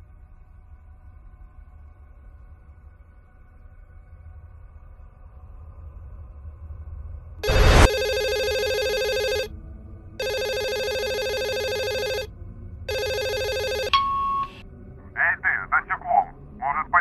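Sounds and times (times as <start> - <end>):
electronic telephone ringing: 7.4 - 9.5, 10.2 - 12.3, 12.9 - 14.6.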